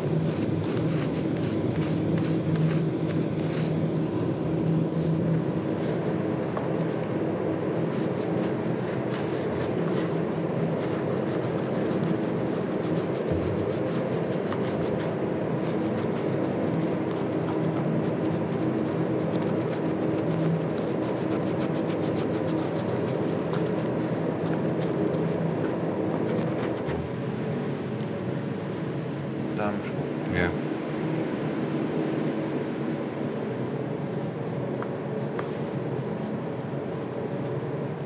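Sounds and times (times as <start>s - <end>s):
cloth rubbing leather shoes: 7.8s - 27.2s.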